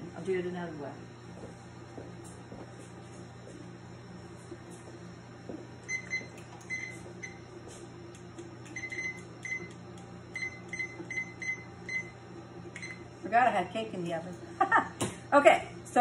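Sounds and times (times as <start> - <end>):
kitchen timer beeps: 5.9 - 7.4, 8.8 - 13.0.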